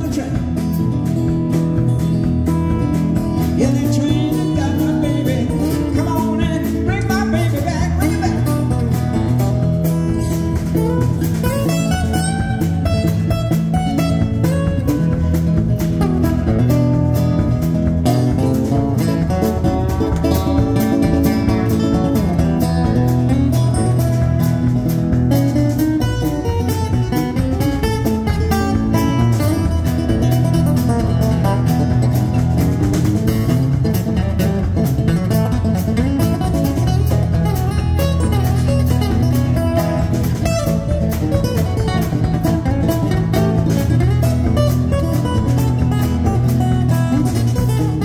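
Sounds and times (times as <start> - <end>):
acoustic guitars strumming: 0.0 - 48.0
drums: 0.0 - 48.0
upright bass: 0.0 - 48.0.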